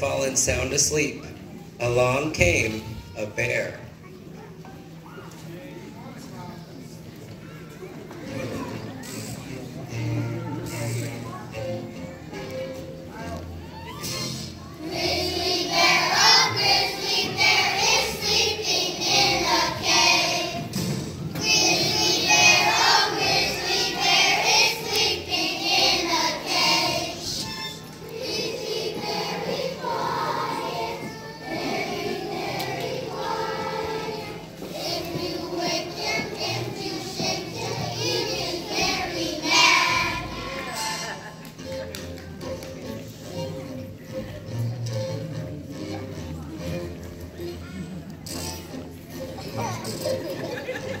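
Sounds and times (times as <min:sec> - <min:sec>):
children's choir singing: 0:14.8 - 0:41.2, 0:49.1 - 0:51.0.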